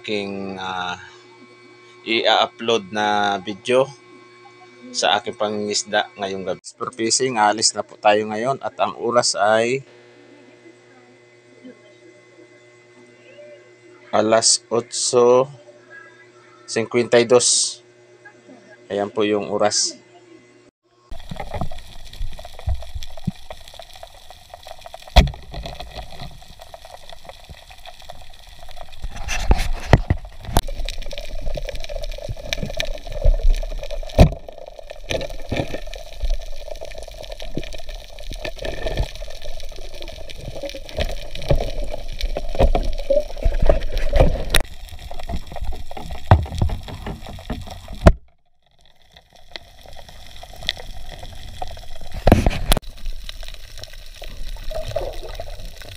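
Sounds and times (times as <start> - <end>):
underwater gurgling and sloshing: 21.1 - 55.9.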